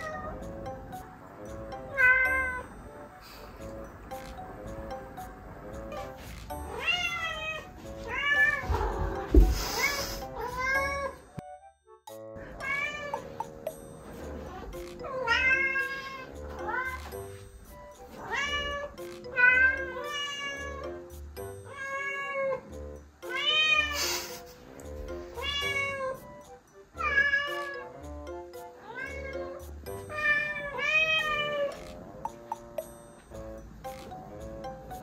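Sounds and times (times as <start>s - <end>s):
cats meowing: 0.0s - 0.4s, 1.8s - 2.6s, 5.9s - 11.2s, 12.4s - 13.4s, 14.5s - 17.2s, 18.1s - 20.9s, 21.7s - 22.7s, 23.3s - 24.0s, 25.3s - 26.3s, 27.0s - 27.9s, 28.8s - 32.1s
background music with beat: 0.0s - 21.9s, 22.6s - 35.0s.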